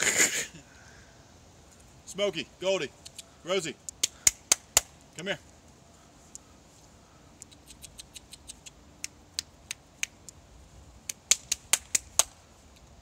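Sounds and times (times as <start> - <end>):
person clicking tongue: 3.0 - 3.3, 7.4 - 10.4.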